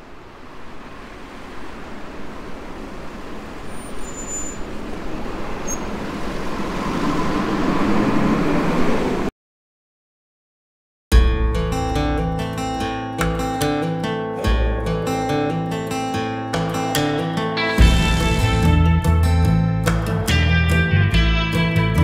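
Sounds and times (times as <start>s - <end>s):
street traffic passing: 0.0s - 9.3s.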